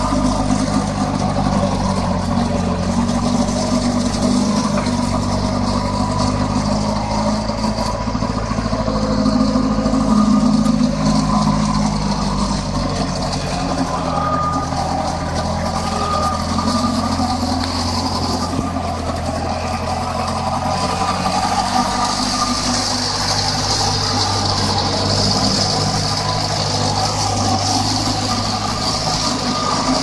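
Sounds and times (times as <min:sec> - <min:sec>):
forklift engine running: 0:00.0 - 0:30.0.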